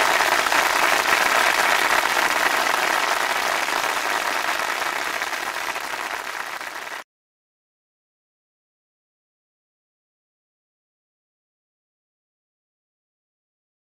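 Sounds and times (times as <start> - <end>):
crowd applauding: 0.0 - 7.0.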